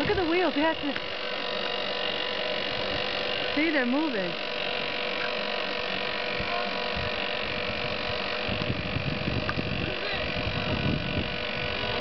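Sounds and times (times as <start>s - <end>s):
electric winch motor hum: 0.0s - 12.0s.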